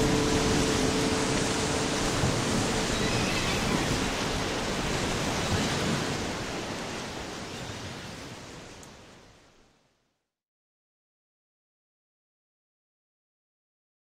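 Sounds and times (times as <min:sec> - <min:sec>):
held musical note: 0:00.0 - 0:04.7
steady rushing noise: 0:00.0 - 0:07.5.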